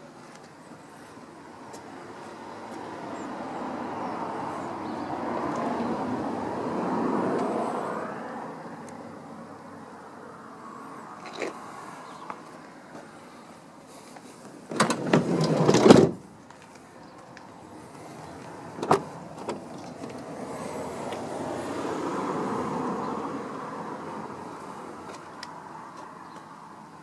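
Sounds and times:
car door opening: 0:14.7 - 0:16.2, 0:18.8 - 0:20.1
sliding car door rolling shut: 0:14.7 - 0:16.2.

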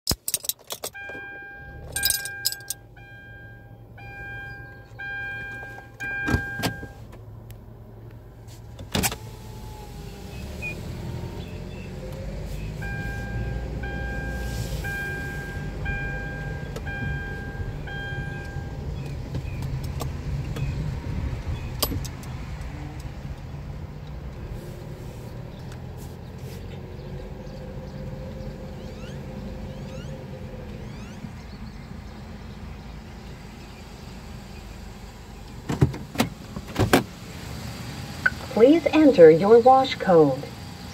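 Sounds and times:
car engine and road rumble: 0:00.0 - 0:40.9
dashboard warning chime beeping: 0:00.8 - 0:07.0, 0:12.5 - 0:19.0.

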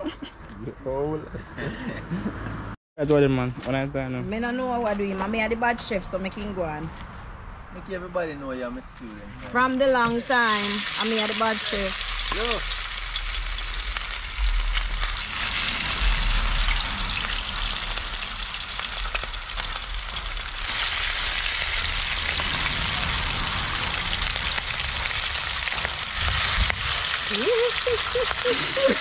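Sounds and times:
fish sizzling in hot oil: 0:10.1 - 0:29.0
low rumbles: 0:10.2 - 0:28.5.

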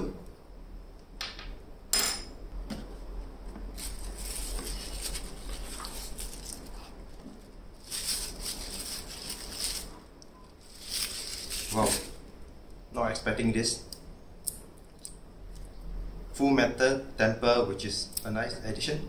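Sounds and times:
tissue paper rustling: 0:03.7 - 0:10.0, 0:10.6 - 0:12.2.

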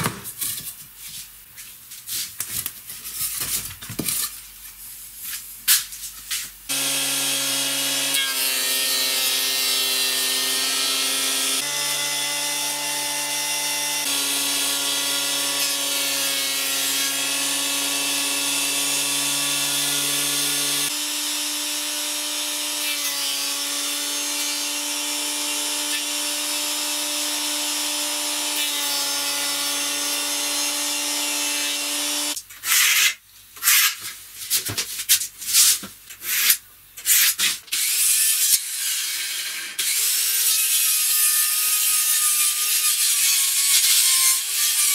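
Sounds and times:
thickness planer planing wood: 0:06.7 - 0:32.4.

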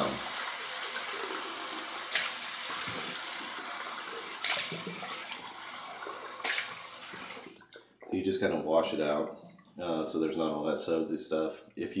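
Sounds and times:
tap running water into a mug: 0:02.0 - 0:03.6, 0:04.3 - 0:07.5.

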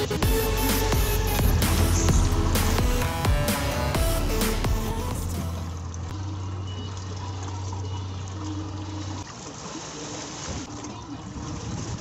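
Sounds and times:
low steady hum: 0:00.2 - 0:09.3
water sloshing against boat hull: 0:05.8 - 0:12.0.

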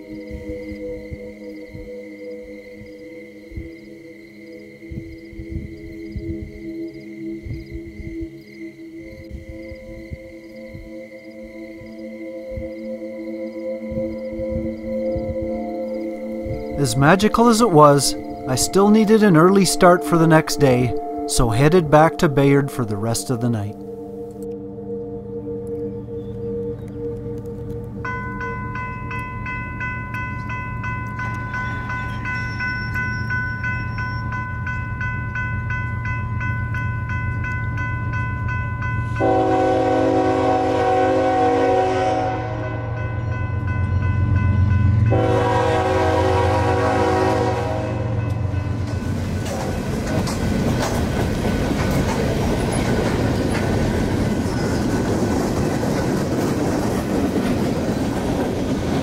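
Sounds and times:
railroad crossing bell ringing: 0:11.7 - 0:24.3, 0:28.0 - 0:59.0
diesel train rumble: 0:13.5 - 0:59.0
locomotive horn blasts: 0:39.1 - 0:43.1, 0:45.0 - 0:48.6
train wheels clattering on rails: 0:48.2 - 0:59.0.

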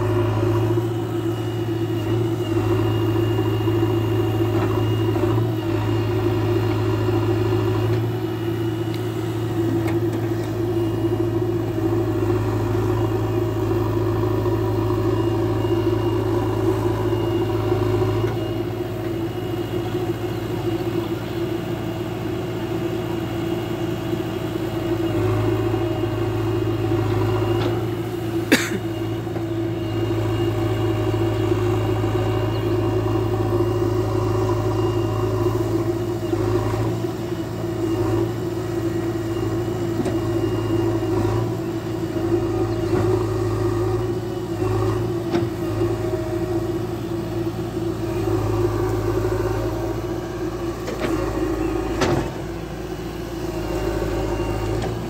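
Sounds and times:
diesel engine under load: 0:00.0 - 0:55.0.

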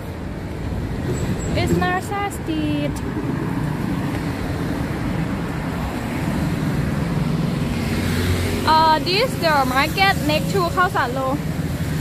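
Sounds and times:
road traffic rumble: 0:00.0 - 0:12.0
vehicle passing: 0:00.9 - 0:12.0.

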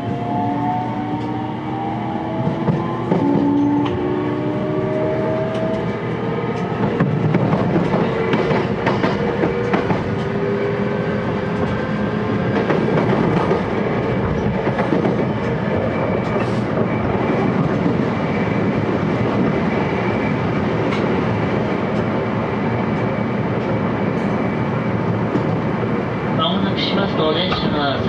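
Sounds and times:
train wheels rumbling on rails: 0:00.0 - 0:28.0
rail joint clicks: 0:02.3 - 0:04.1, 0:04.9 - 0:10.4, 0:11.4 - 0:18.1, 0:20.7 - 0:22.2, 0:22.8 - 0:24.5, 0:27.2 - 0:27.9.

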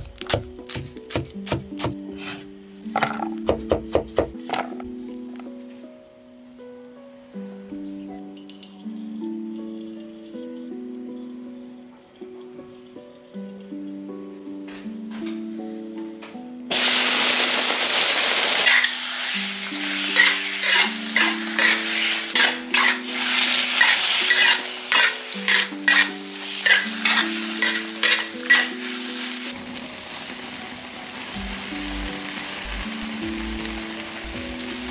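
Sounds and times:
meat sizzling in hot oil: 0:16.7 - 0:34.9
spatula scraping and knocking wok: 0:18.6 - 0:29.5.

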